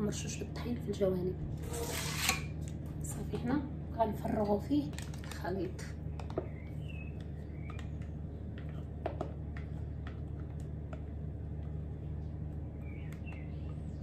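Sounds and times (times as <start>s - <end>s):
steady low hum: 0.0s - 14.0s
spatula clicking and tapping: 7.2s - 11.8s.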